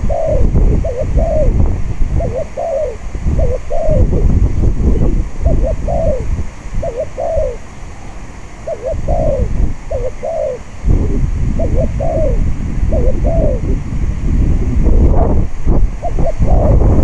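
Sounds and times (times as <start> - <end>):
dove cooing: 0.0 - 13.9, 14.8 - 17.0
wind rumble on microphone: 0.0 - 17.0.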